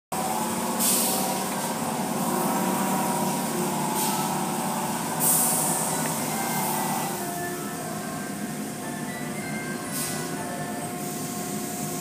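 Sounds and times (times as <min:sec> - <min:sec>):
car wash machinery humming: 0:00.1 - 0:12.0
hissing spray bursts: 0:00.8 - 0:01.4, 0:05.2 - 0:05.8.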